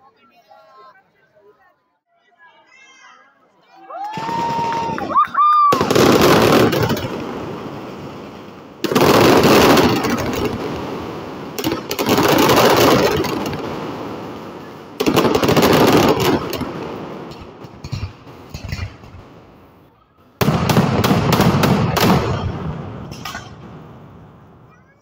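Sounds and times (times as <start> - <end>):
firecrackers banging rapidly: 4.2 - 25.0
echoing rumble: 5.8 - 24.7.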